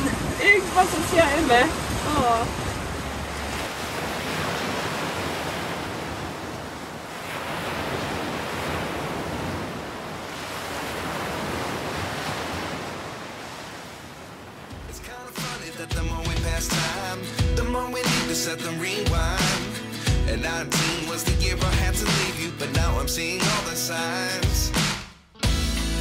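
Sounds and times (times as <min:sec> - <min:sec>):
wind: 0:00.0 - 0:15.0
breaking waves: 0:00.0 - 0:15.8
music: 0:14.8 - 0:26.0.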